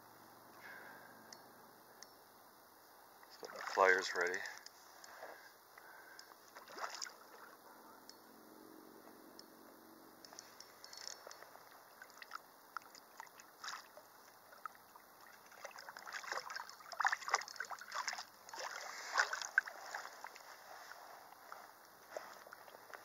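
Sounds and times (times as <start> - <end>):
water sloshing and splashing: 3.3 - 4.7, 6.4 - 7.7, 10.8 - 23.0.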